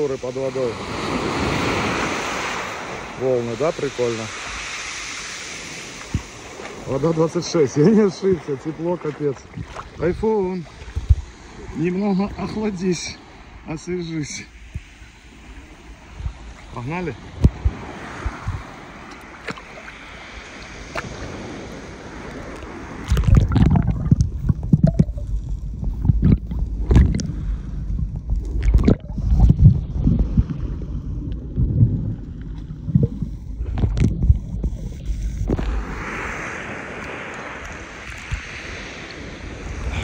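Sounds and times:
muffled underwater sloshing: 0:00.0 - 0:40.0
waves and wind hiss: 0:00.0 - 0:40.0.

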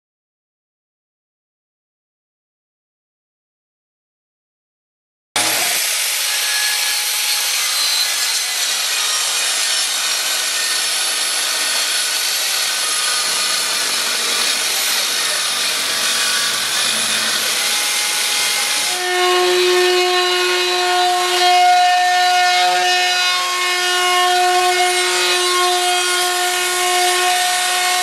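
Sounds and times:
router humming: 0:05.4 - 0:19.2
track saw cutting wood: 0:05.4 - 0:28.0.

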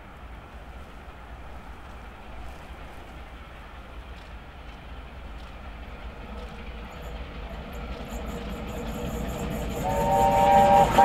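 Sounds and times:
steam train approaching at speed: 0:00.0 - 0:11.0.

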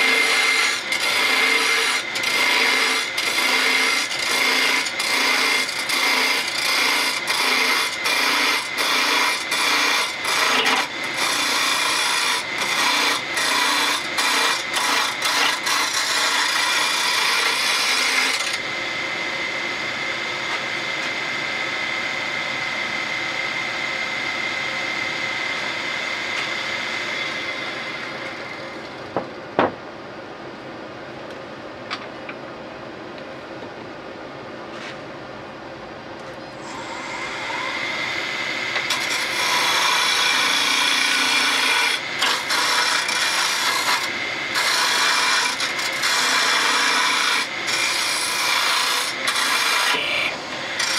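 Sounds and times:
turning tool cutting wood: 0:00.0 - 0:18.6, 0:36.6 - 0:50.9
wood lathe whine: 0:00.0 - 0:29.0, 0:36.4 - 0:50.9.

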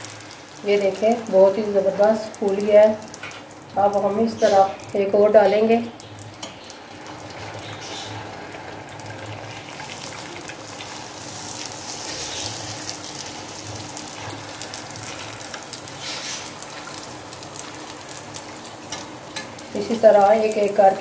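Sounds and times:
hot oil sizzling: 0:00.0 - 0:21.0
oil spitting crackles: 0:05.9 - 0:20.0.

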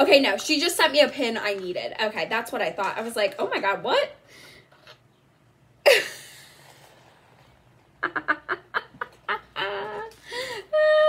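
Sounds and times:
woman laughing: 0:08.0 - 0:11.0.

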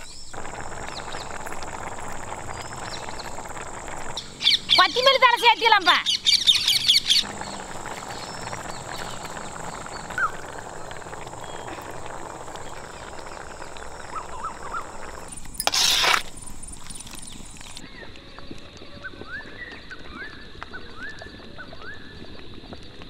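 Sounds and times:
curry simmering and bubbling: 0:00.0 - 0:05.0, 0:06.1 - 0:17.9
faint bird chirps: 0:06.0 - 0:15.4
metal ladle scraping pan: 0:15.6 - 0:17.8.

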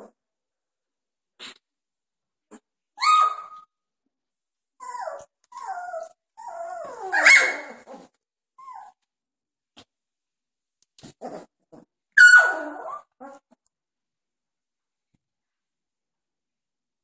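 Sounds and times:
puppies squealing and whining: 0:03.0 - 0:03.6, 0:04.8 - 0:09.0, 0:12.1 - 0:13.5.

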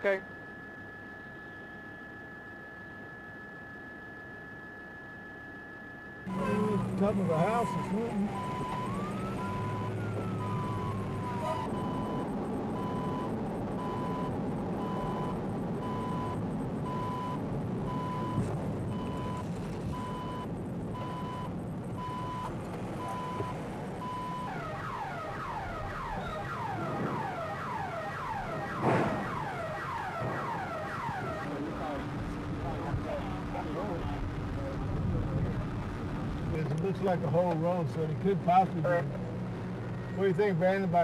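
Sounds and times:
electronic alarm beeping: 0:00.0 - 0:32.2
low rumble: 0:06.3 - 0:40.2
car alarm falling sweeps: 0:07.6 - 0:31.6.

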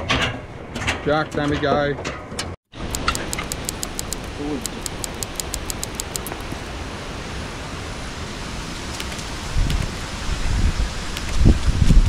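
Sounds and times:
faint high ticking: 0:02.8 - 0:06.6
wind buffeting microphone: 0:09.4 - 0:12.0.

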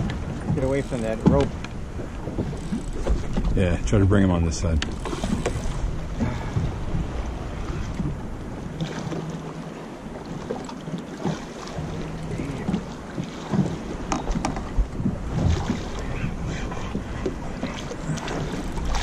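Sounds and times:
water slapping against boat hull: 0:00.0 - 0:19.0
wind buffeting microphone: 0:00.0 - 0:19.0.

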